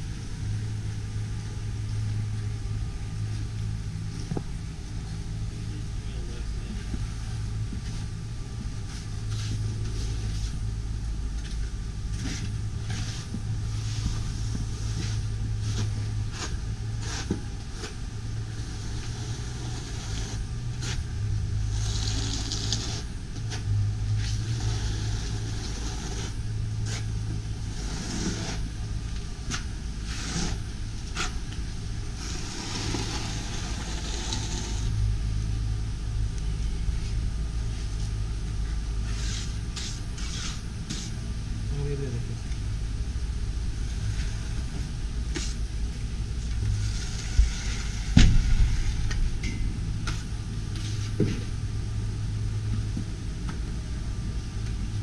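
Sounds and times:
low rumble: 0.0 - 55.0
trowel scraping on concrete: 18.6 - 21.0, 21.7 - 23.1, 24.2 - 27.1, 27.7 - 28.7, 29.5 - 31.4, 32.2 - 34.9, 39.1 - 41.1.

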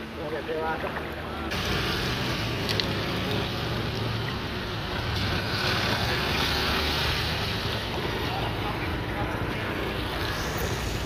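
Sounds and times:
road traffic passing: 0.0 - 11.0
tyre hiss: 10.0 - 11.0.

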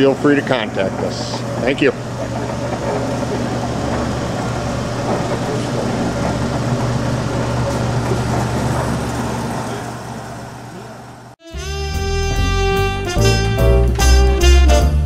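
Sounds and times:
band saw humming and whirring: 0.0 - 11.6.

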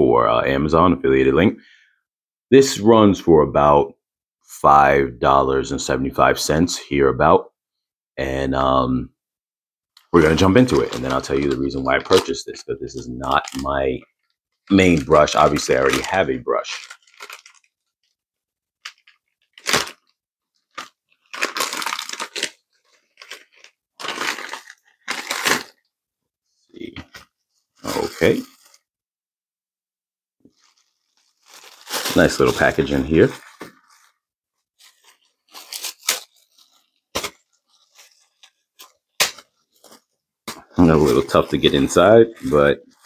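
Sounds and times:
plastic bag crinkling: 10.2 - 12.4, 13.2 - 17.9, 18.8 - 25.8, 30.5 - 40.2
plastic bag tearing: 10.2 - 12.4, 13.2 - 13.6, 14.7 - 17.7, 18.8 - 20.1, 20.7 - 25.8, 30.5 - 34.2, 34.8 - 40.0, 40.8 - 43.0.

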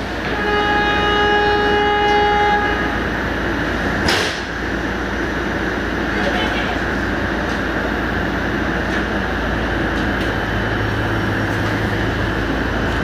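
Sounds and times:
train horn: 0.2 - 3.2.

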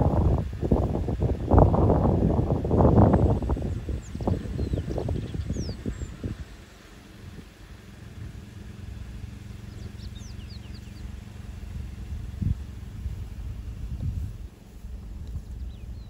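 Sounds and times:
car engine idling: 0.0 - 16.0
faint high bird chirps: 3.6 - 6.8, 9.5 - 11.2.

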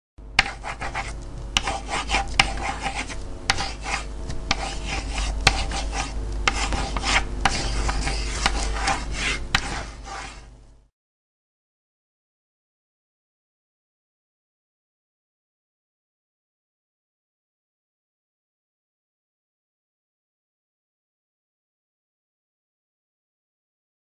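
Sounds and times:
steady low hum: 0.2 - 10.9
pen scratching on paper: 0.4 - 10.5.

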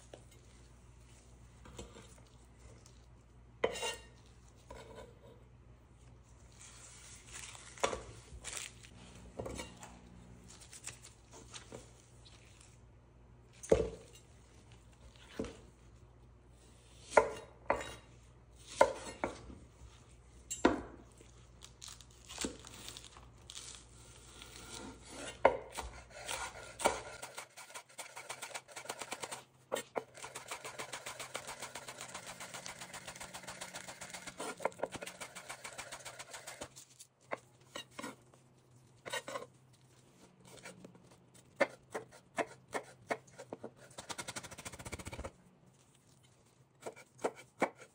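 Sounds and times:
knife chopping on wooden board: 25.1 - 28.5, 46.8 - 47.9.

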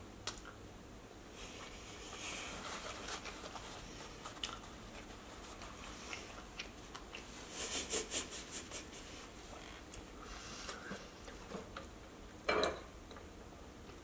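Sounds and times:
person chewing food: 3.2 - 7.8.

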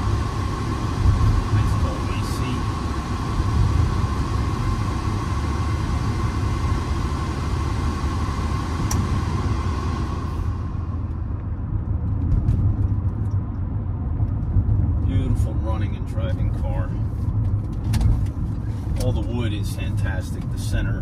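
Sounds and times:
climate-control blower rushing: 0.0 - 11.5
road and engine rumble: 0.0 - 21.0.

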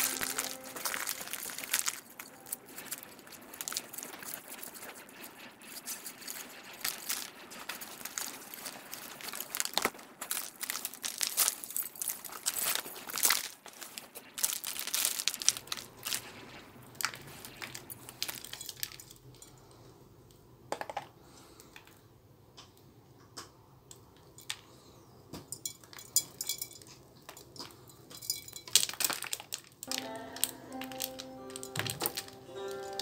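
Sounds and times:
soil crunching and spilling: 0.0 - 19.3, 28.3 - 33.0
grains falling onto cardboard: 0.0 - 19.4, 24.2 - 33.0.

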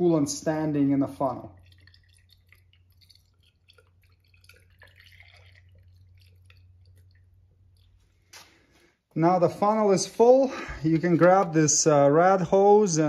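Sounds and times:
liquid trickling into funnel: 0.2 - 9.0
small drips and splashes: 0.9 - 9.1.

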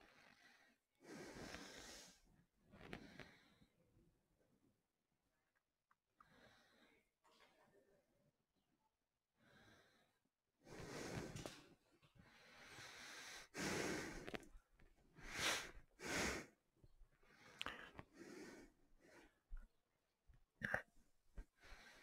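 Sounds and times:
man breathing through face mask: 0.0 - 2.2, 9.5 - 11.5, 12.2 - 14.4, 15.2 - 16.6, 17.3 - 19.3.

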